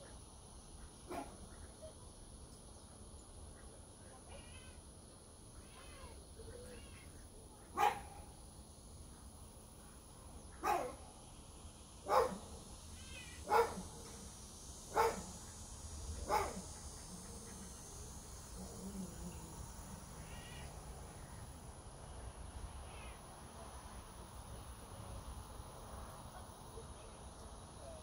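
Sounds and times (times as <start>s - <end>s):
cat meowing: 4.3s - 4.8s, 5.6s - 7.1s, 13.0s - 13.4s.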